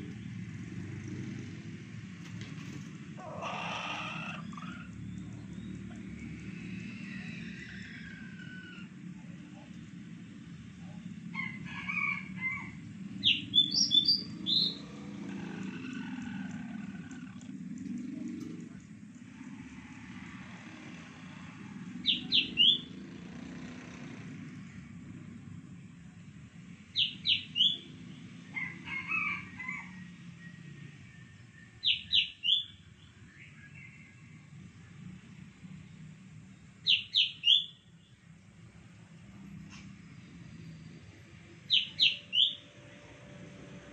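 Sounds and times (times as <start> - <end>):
rooster crowing: 6.8 - 9.0, 11.3 - 12.9, 28.4 - 31.3
soft rooster calls: 11.3 - 12.9, 28.4 - 31.3
high bird chirps: 13.2 - 14.9, 22.0 - 22.9, 27.0 - 27.9, 31.8 - 32.8, 36.8 - 37.9, 41.7 - 42.7.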